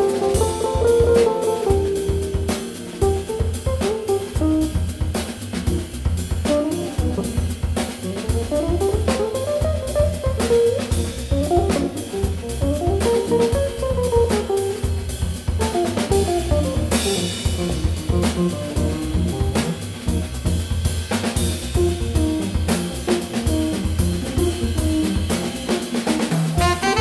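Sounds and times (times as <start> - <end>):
drum kit groove: 0.0 - 27.0
pulsing bass line: 3.1 - 20.8
tenor saxophone: 6.5 - 9.8, 26.6 - 27.0.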